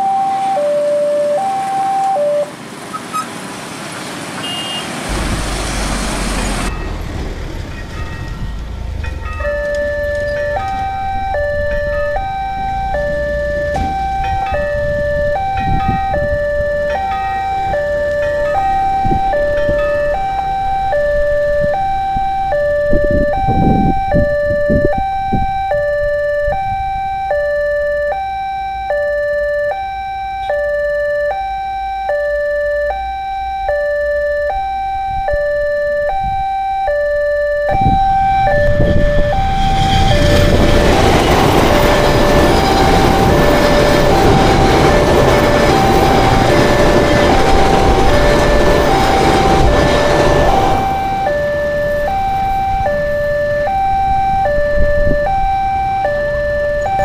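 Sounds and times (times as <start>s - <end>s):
level crossing alarm two tones: 0.0s - 2.5s, 4.4s - 57.0s
train passing rumble: 5.0s - 26.7s, 37.7s - 57.0s.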